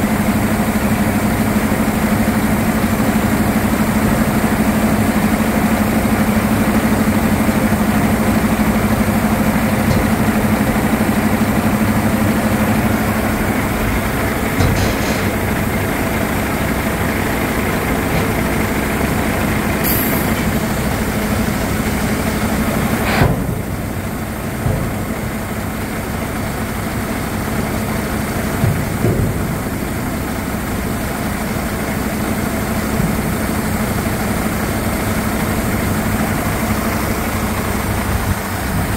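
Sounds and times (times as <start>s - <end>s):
diesel truck engine running: 0.0s - 38.9s.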